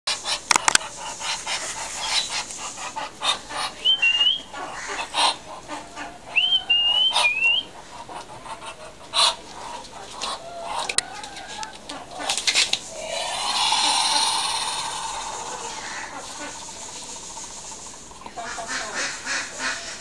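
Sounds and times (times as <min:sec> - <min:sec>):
ducks hissing: 0:00.2 - 0:11.0, 0:11.9 - 0:20.0
high whistled notes: 0:12.8 - 0:17.1.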